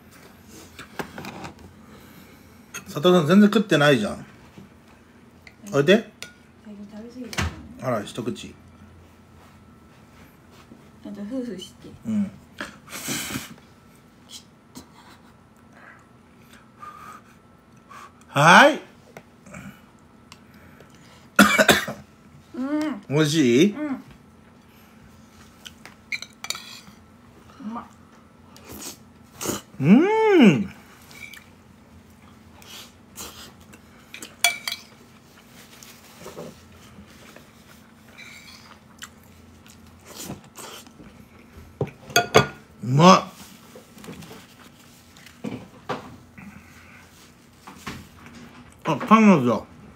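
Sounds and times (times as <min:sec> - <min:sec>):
quiet chewing: 0:31.0 - 0:42.0.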